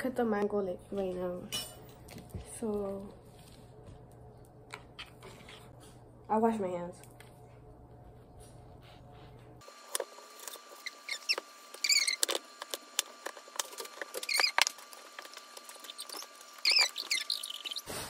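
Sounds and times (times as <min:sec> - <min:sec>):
short high squeaks: 0:10.8 - 0:12.4, 0:14.1 - 0:14.8, 0:15.8 - 0:17.9.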